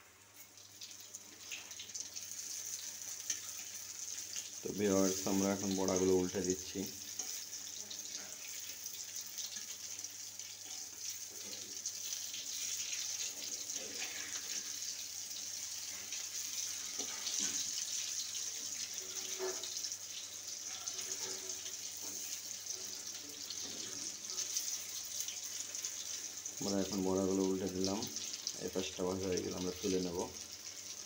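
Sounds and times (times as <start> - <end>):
fritters sizzling in hot oil: 0.0 - 31.0
metal spatula scraping pan: 19.0 - 19.8.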